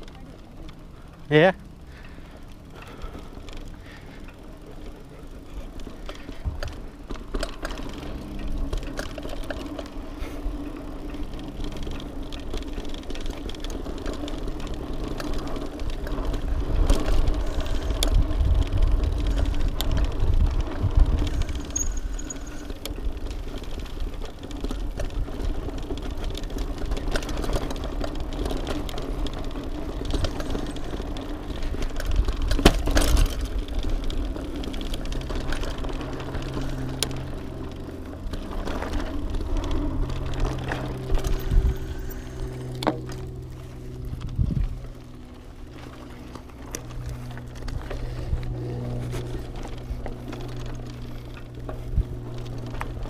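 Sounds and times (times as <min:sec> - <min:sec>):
bike clicks and rattles: 0:00.0 - 0:53.0
bike tyres rolling on dirt: 0:00.0 - 0:53.0
wind rumble on microphone: 0:15.4 - 0:53.0.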